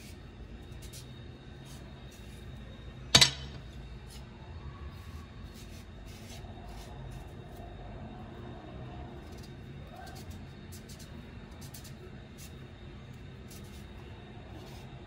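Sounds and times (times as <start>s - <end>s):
knife scraping pumpkin rind: 5.4s - 7.4s.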